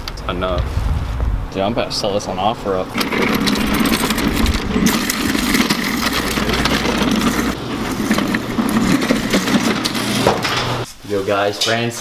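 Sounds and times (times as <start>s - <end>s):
chair casters rolling on pavement: 2.9s - 10.9s.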